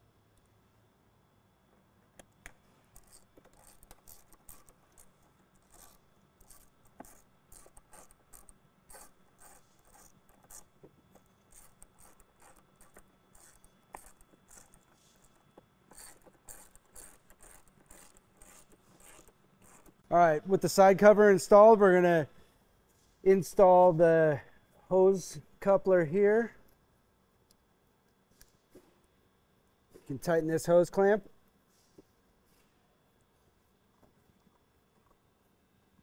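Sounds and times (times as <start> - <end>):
hand ratchet clicking: 2.4 - 20.0.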